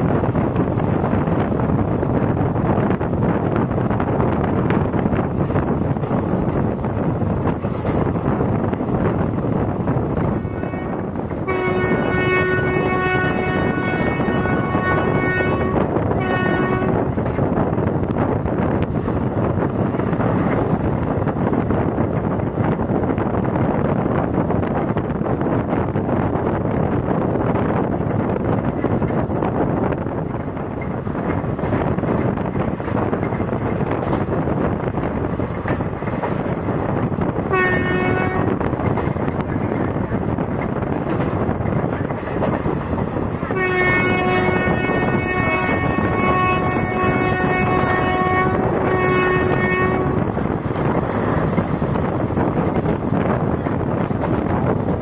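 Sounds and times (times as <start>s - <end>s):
moving train wind and running noise: 0.0s - 55.0s
train horn blasts: 10.4s - 17.1s, 37.5s - 38.7s, 43.5s - 50.4s.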